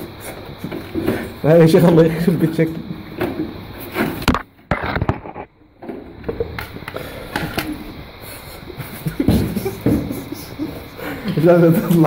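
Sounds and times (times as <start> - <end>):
handling noise: 0.0 - 8.2.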